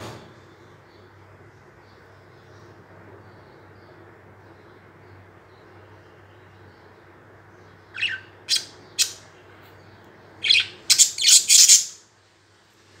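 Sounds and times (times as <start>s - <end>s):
budgerigars calling: 7.9s - 9.3s, 10.4s - 12.0s.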